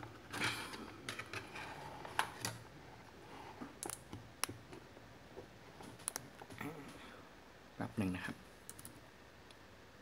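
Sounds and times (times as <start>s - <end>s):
laptop keystrokes: 8.7s - 8.9s.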